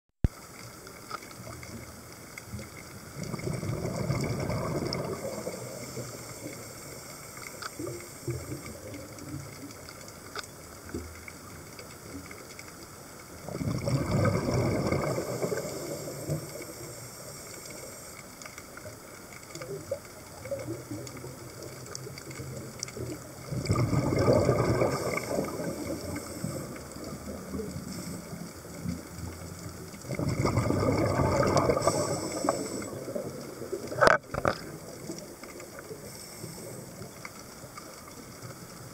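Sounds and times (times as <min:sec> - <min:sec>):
faint clicks: 0:00.3 - 0:38.9
steady underwater hiss: 0:00.3 - 0:38.9
diver exhaling bubbles: 0:03.2 - 0:06.6, 0:13.4 - 0:16.7, 0:23.4 - 0:28.5, 0:30.0 - 0:35.1.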